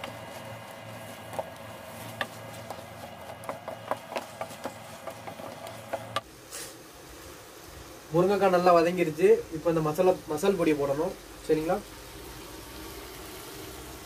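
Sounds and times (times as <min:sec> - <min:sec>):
steady low hum: 0:00.0 - 0:14.0
spatula knocking and scraping pan: 0:01.2 - 0:06.2.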